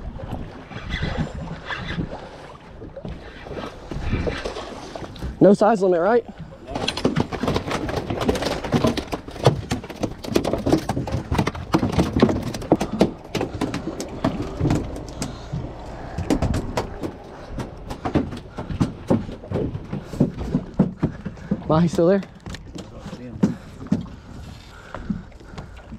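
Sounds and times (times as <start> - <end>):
low rumble of wind: 0.0 - 25.9
water rumbling: 0.0 - 25.9
rapid knocks and clatter: 6.7 - 24.1.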